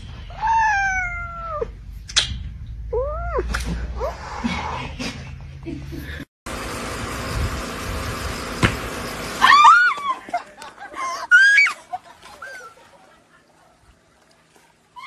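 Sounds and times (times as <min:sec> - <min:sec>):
high-pitched screaming: 0:09.4 - 0:10.0.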